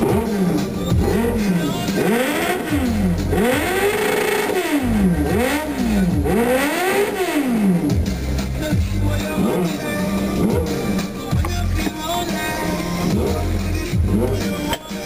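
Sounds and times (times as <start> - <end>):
motorcycle engine revving: 0.0 - 14.8
music: 0.0 - 15.0.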